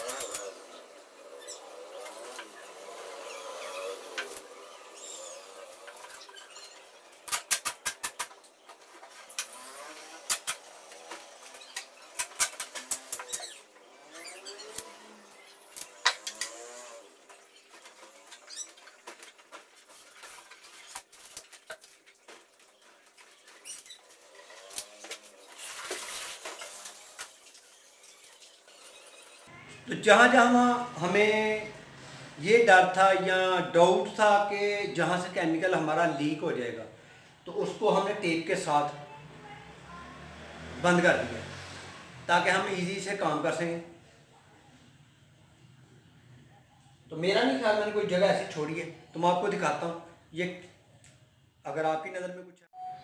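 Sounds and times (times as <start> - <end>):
tape ripping off roll: 17.8 - 29.0.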